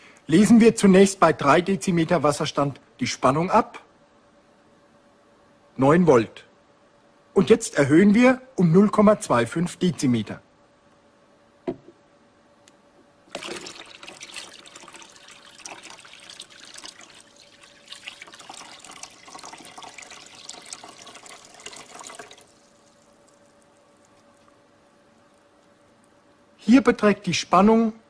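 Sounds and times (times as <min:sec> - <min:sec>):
water pouring into tank: 0:13.3 - 0:26.1.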